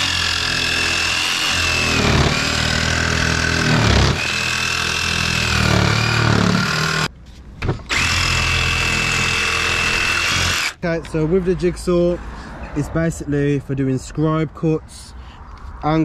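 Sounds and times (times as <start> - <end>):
jigsaw cutting wood: 0.0 - 7.1, 7.9 - 10.8.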